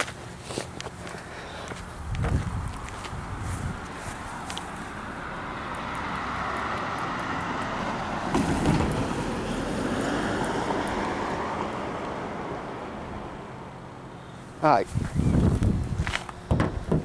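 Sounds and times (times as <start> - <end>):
wind buffeting microphone: 1.8 - 5.0, 14.8 - 17.0
vehicle passing by: 2.0 - 16.3.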